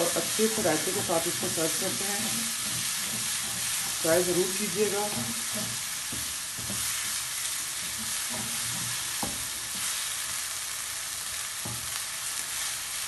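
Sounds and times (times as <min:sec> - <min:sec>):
wooden spatula scraping pan: 0:00.0 - 0:10.0
onions sizzling in hot oil: 0:00.0 - 0:13.0.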